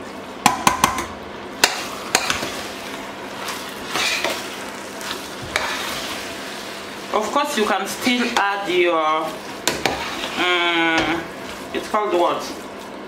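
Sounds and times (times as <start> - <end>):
spoon knocking on metal pot: 0.4 - 2.4
spoon stirring thick mixture: 7.0 - 10.4.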